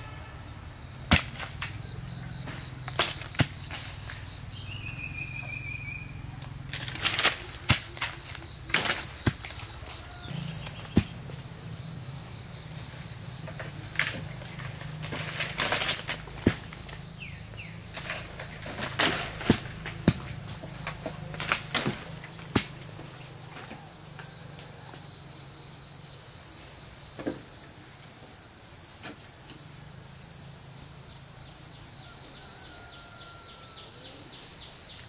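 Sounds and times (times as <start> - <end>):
high-pitched insect drone: 0.0 - 18.6.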